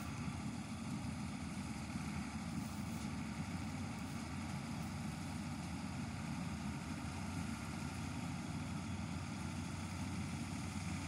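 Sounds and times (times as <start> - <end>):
combine harvester humming: 0.0 - 11.0.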